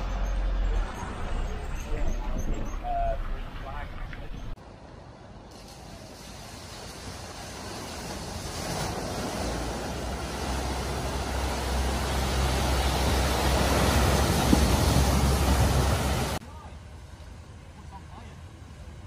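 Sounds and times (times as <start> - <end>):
low engine drone: 0.0 - 5.5
water rushing and splashing: 0.7 - 16.5.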